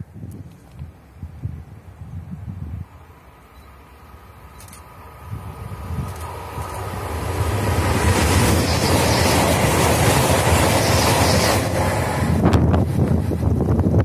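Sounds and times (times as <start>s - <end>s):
wind gusts: 0.0s - 14.0s
train roaring past: 2.8s - 14.0s.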